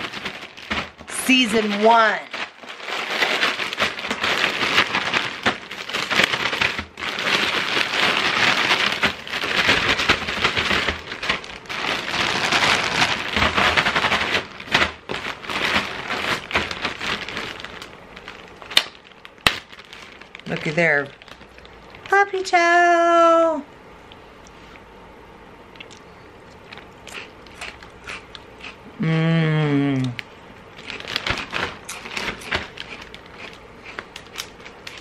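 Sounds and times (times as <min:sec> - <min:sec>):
cereal rattling in shaken bag: 0:00.0 - 0:22.2, 0:30.8 - 0:35.0.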